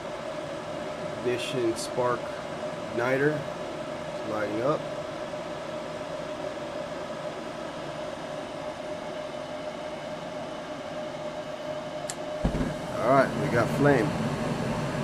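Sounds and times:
inducer motor hum and whine: 0.0 - 15.0
burners igniting with low rush: 12.4 - 15.0.

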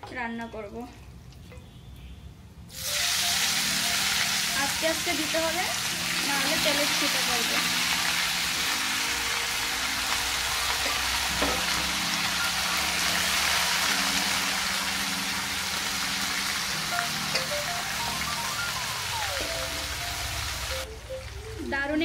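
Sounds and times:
chicken sizzling in hot oil: 2.7 - 20.9.

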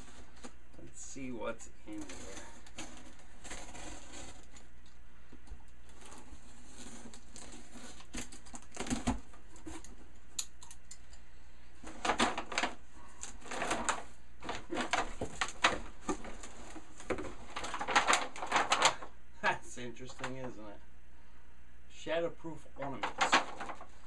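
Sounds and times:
plastic bags crinkling: 11.8 - 19.1, 22.8 - 24.0.

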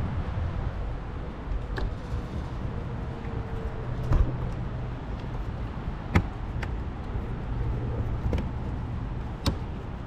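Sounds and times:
low rumble of traffic: 0.0 - 10.0.

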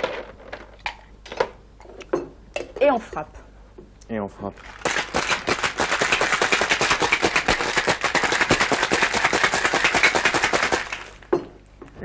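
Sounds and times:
ice rattling in cocktail shaker: 4.6 - 11.4.

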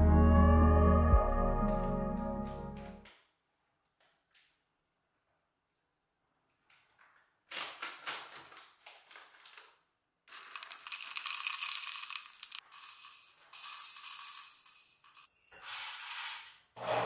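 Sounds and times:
coffee beans pouring into metal cup: 10.3 - 14.9.

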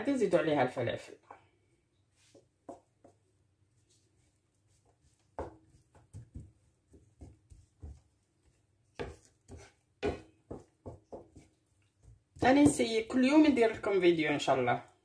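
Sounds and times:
spatula stirring onion in pan: 2.1 - 14.0.

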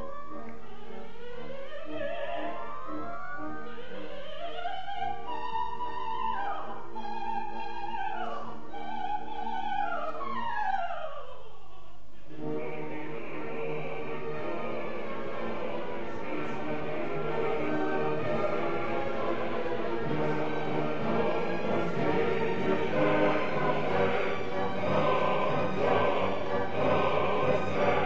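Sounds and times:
orchestra playing: 12.4 - 28.0.

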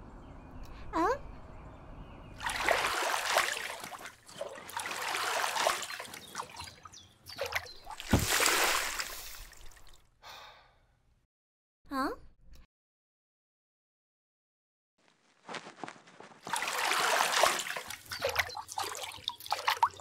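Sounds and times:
feet splashing through shallow water: 2.4 - 10.0, 16.4 - 20.0.

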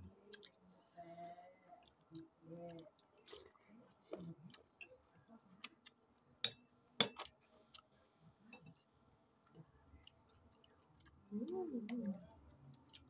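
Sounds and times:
chewing: 1.8 - 4.7, 9.4 - 13.0.

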